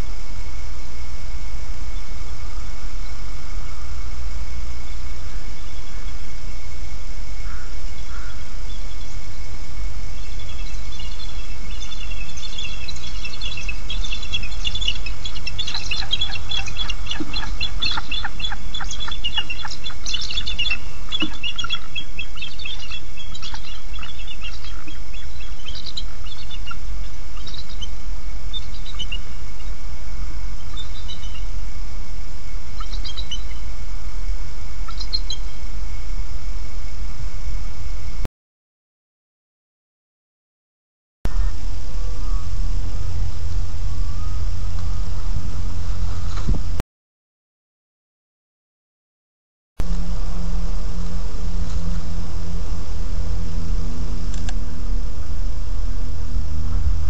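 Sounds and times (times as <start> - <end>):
low background rumble: 0.0 - 38.2, 41.3 - 46.8, 49.8 - 57.0
eagles chittering calls: 7.4 - 9.2, 10.2 - 29.7, 32.8 - 33.6.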